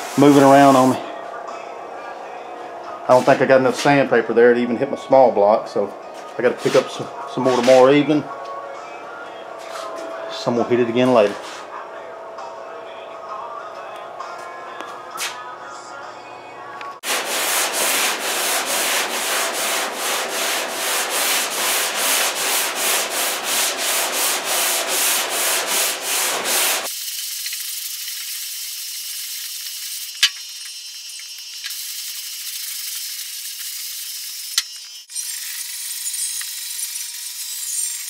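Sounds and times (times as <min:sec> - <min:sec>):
hand sanding sheet metal: 0:00.0 - 0:01.0, 0:03.1 - 0:04.1, 0:06.4 - 0:08.2, 0:17.0 - 0:34.7.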